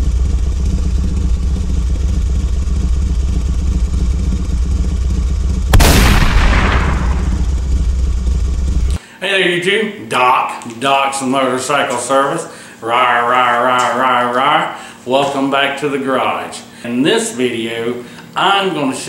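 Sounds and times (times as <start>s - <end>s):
motorcycle engine rumbling: 0.0s - 9.0s
loud bang: 5.7s - 8.5s.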